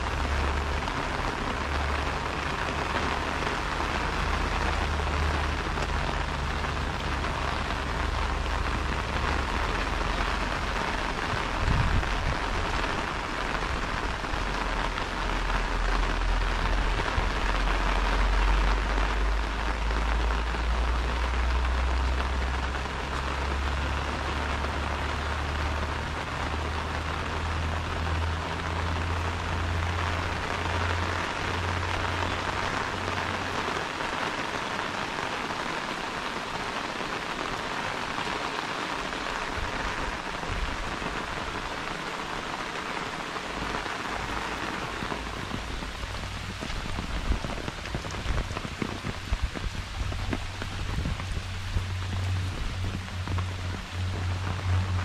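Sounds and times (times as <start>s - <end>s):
rain on an umbrella: 0.0s - 55.0s
low rumble: 43.6s - 55.0s.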